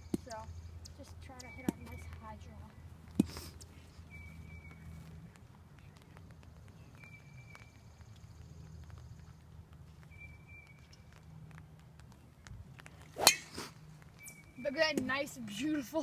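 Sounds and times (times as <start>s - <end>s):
golf driver striking ball: 13.2s - 13.7s.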